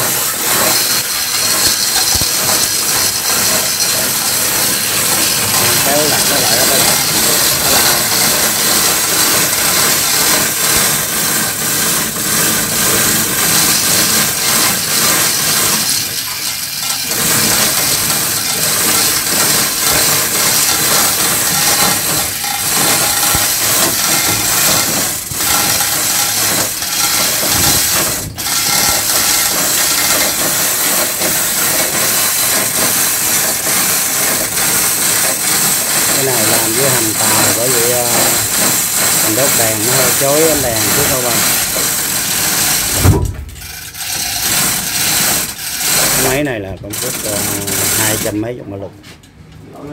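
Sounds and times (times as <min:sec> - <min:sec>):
chain hoist rattling and clicking: 0:00.0 - 0:48.4.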